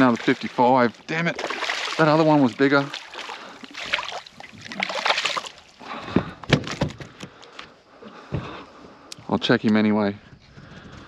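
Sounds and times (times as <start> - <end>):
fish thrashing in water: 0.0 - 7.2.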